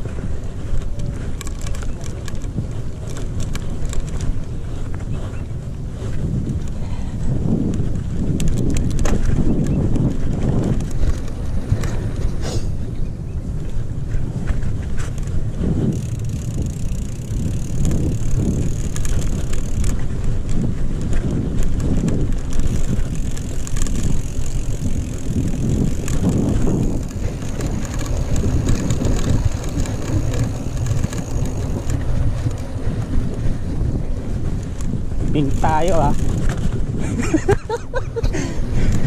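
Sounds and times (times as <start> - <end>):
bike rattling over bumps: 0.0 - 39.0
wind on microphone: 0.0 - 39.0
tyres rumbling on dirt: 13.8 - 38.0.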